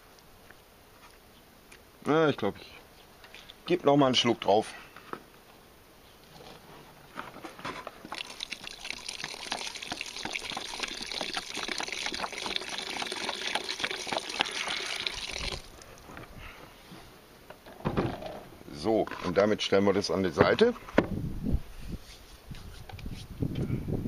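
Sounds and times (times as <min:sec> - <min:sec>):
water pouring into bucket: 0:08.0 - 0:15.8.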